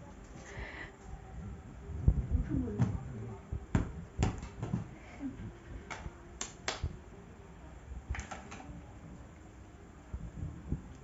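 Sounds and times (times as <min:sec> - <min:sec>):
hands slapping rubber football: 0:03.7 - 0:04.9.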